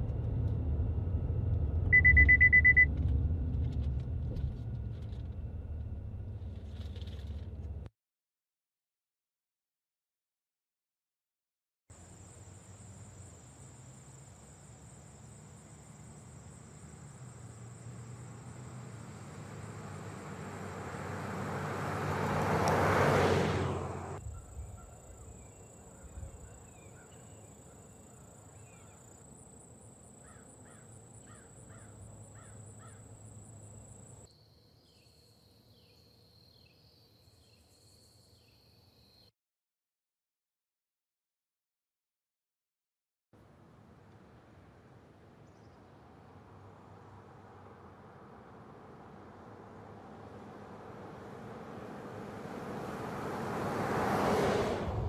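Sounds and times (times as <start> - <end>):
passing vehicle: 0.0 - 7.9, 12.0 - 29.0, 45.9 - 55.0
insect drone: 12.0 - 21.2, 24.2 - 39.3
birds calling: 30.2 - 34.1.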